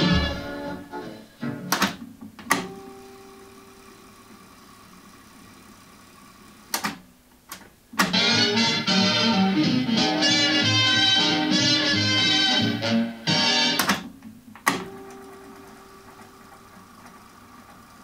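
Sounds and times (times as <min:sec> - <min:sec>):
music playing: 0:00.0 - 0:01.8, 0:08.1 - 0:14.0
cassette mechanism clunking: 0:00.0 - 0:02.9, 0:06.7 - 0:08.5, 0:13.4 - 0:17.2.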